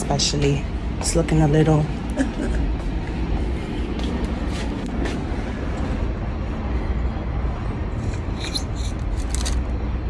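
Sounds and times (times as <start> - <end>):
low background rumble: 0.0 - 10.0.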